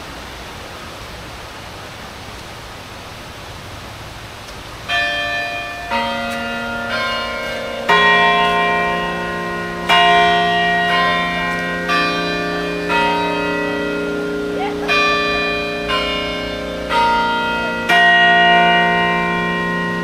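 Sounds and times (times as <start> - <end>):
falling water rushing: 0.0 - 20.0
carillon bells ringing: 4.9 - 20.0.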